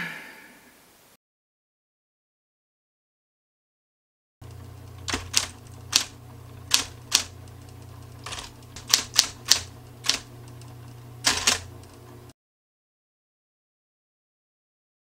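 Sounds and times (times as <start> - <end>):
typewriter keys striking: 4.4 - 12.0
steady low hum: 4.4 - 12.3.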